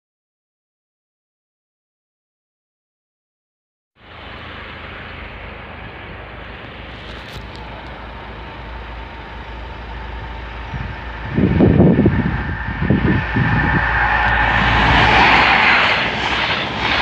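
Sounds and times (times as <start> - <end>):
approaching electric train: 4.0 - 17.0
heavy low rumbling bursts: 4.0 - 17.0
steady high tone: 4.0 - 17.0.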